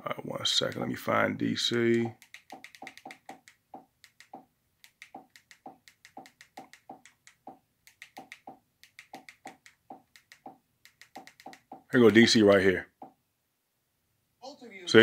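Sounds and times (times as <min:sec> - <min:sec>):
remote control buttons clicking: 0:01.9 - 0:11.9.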